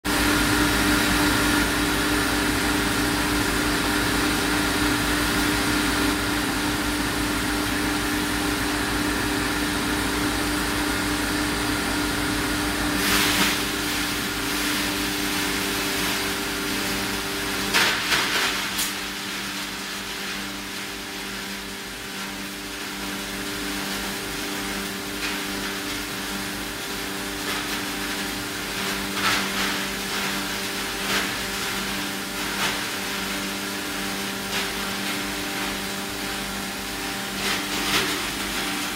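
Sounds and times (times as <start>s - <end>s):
wood crusher humming: 0.1s - 38.9s
wood being shredded: 0.4s - 38.9s.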